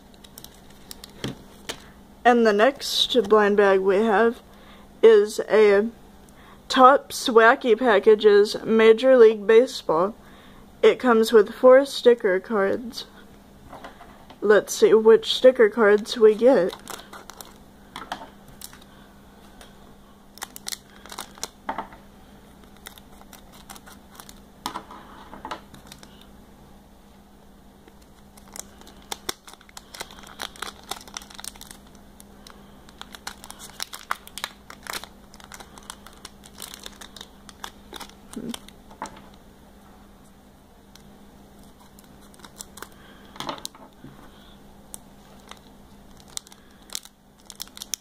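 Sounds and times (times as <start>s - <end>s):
foil wrapper crinkling: 0.0s - 1.9s, 15.9s - 17.6s, 18.5s - 18.9s, 20.3s - 21.6s, 22.6s - 24.4s, 25.7s - 26.3s, 27.8s - 39.0s, 41.6s - 43.8s, 44.9s - 48.0s.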